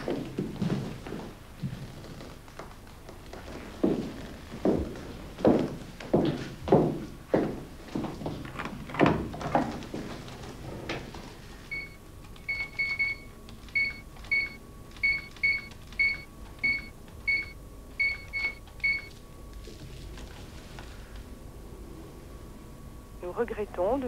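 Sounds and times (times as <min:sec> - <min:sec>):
telephone keypad beeps: 0:11.7 - 0:19.1.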